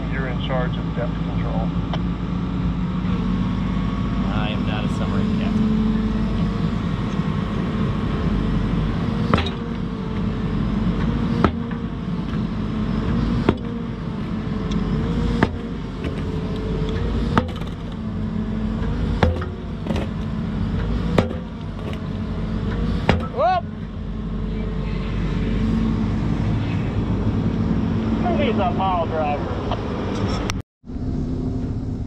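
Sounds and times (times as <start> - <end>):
excavator engine running: 0.0 - 32.0
concrete block striking steel pile: 15.3 - 16.5, 17.3 - 18.0, 19.2 - 20.3, 21.1 - 22.1.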